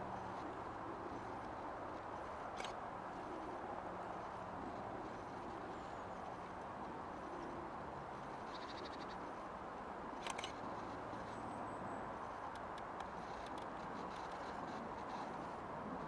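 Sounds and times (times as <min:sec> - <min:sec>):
outdoor background hum: 0:00.0 - 0:16.0.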